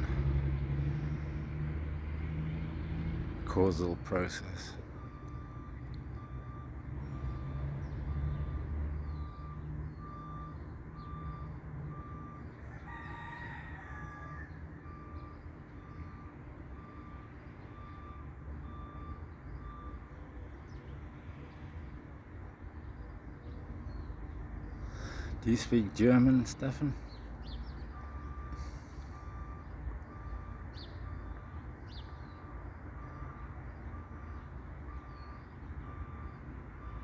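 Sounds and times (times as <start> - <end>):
engine rumble: 0.0 - 37.0
reversing alarm beeping: 3.7 - 12.6, 14.1 - 20.2, 27.9 - 37.0
rooster crowing: 12.6 - 14.7.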